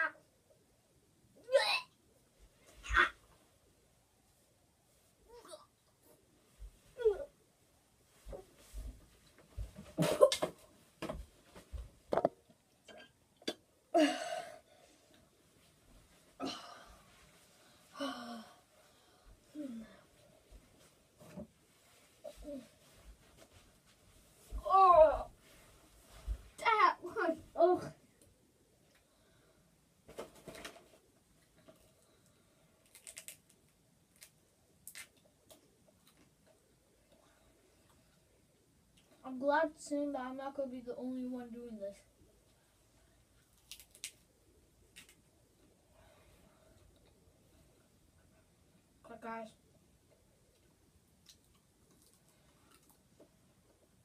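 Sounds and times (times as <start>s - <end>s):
boy making vocal noises: 1.4s - 1.9s, 2.8s - 3.2s, 7.0s - 7.3s, 19.5s - 20.0s, 24.5s - 25.3s
plastic candy bag crinkling: 32.8s - 35.1s, 43.5s - 44.2s.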